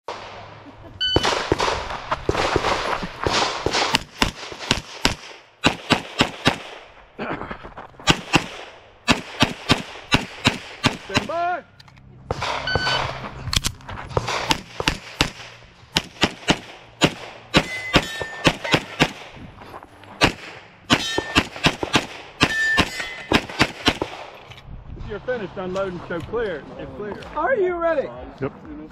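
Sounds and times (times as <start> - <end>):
shot timer beep: 1.0 - 1.3, 12.6 - 13.0
handgun shots: 8.1 - 11.4, 14.2 - 19.3
steel targets pinging: 17.0 - 19.2, 20.2 - 23.5.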